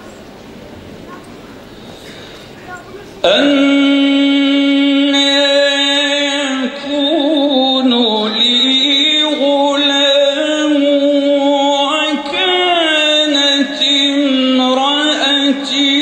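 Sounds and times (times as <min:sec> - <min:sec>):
man chanting into a microphone: 0:03.2 - 0:16.0.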